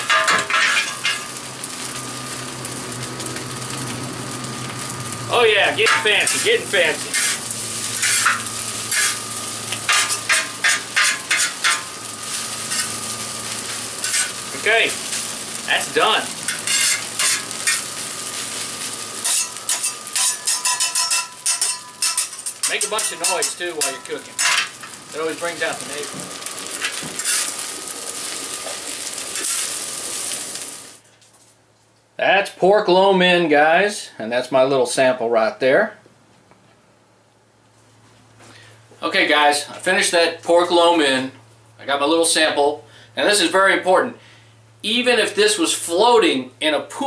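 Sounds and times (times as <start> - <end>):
noodles sizzling: 0.0 - 31.7
utensil scraping pan: 5.8 - 15.4, 16.4 - 25.0, 26.8 - 27.6.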